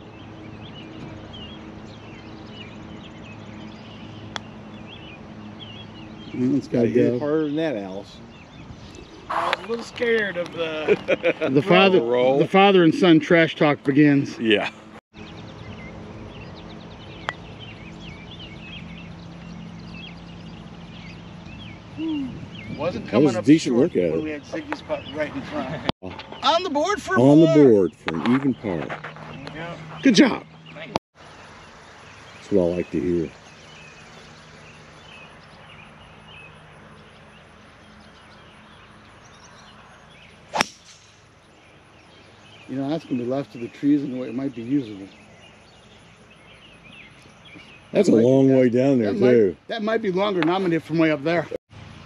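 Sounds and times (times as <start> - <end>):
steady low hum: 0.0 - 25.9
birds chirping and singing: 0.0 - 52.0.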